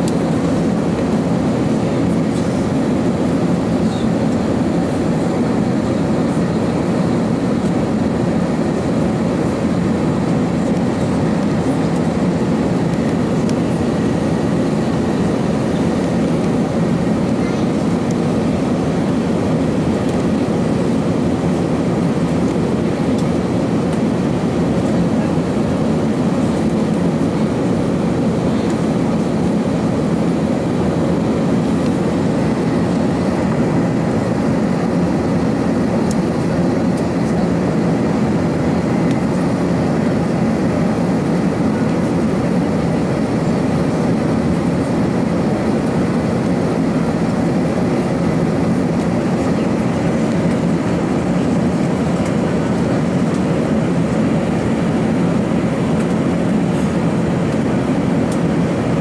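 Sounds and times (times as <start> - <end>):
airplane cabin engine drone: 0.0 - 59.0.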